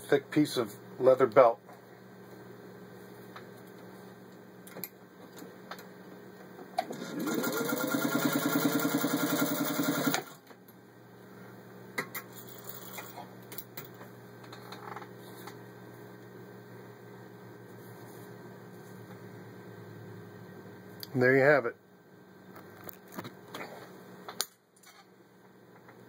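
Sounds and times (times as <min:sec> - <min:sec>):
sewing machine motor stitching: 0:06.9 - 0:10.4.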